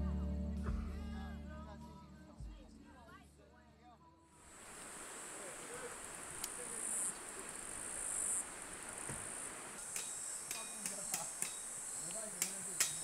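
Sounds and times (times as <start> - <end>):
insects chirring: 4.4 - 13.0
faint clicks: 6.4 - 7.3, 9.9 - 13.0.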